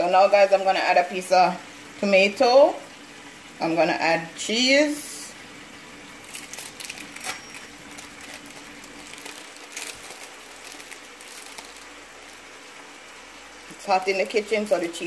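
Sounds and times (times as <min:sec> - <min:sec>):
faint steady hum: 0:00.0 - 0:15.0
plastic film crinkling: 0:06.0 - 0:13.0.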